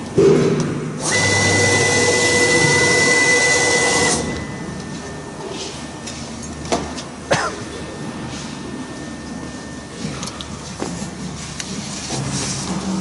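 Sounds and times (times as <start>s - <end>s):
router spindle whine: 1.0s - 6.6s.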